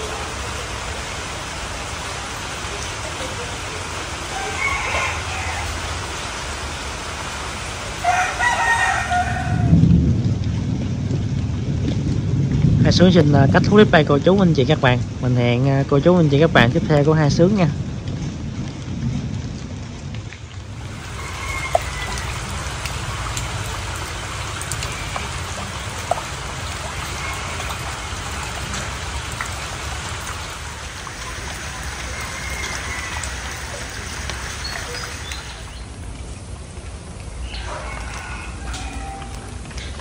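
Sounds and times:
heavy rain on water and leaves: 0.0 - 40.0
steady low rumble: 9.3 - 32.5.

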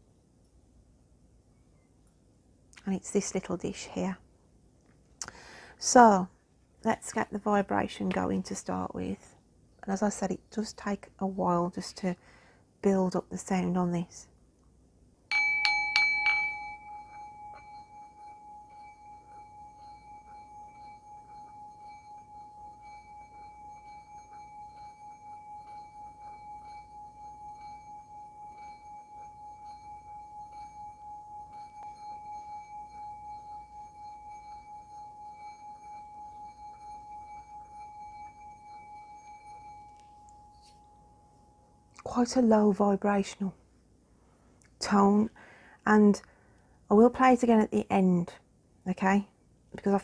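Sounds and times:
singing bowl struck with mallet: 15.3 - 41.9
singing bowl ringing tone: 15.3 - 42.6.

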